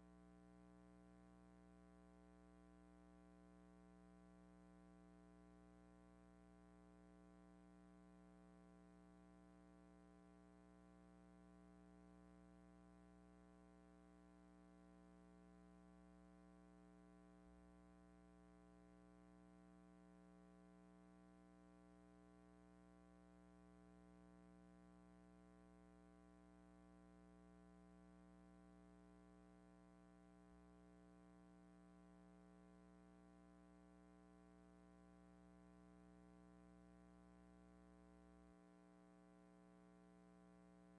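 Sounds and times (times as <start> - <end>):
faint steady hum: 0.0 - 40.9.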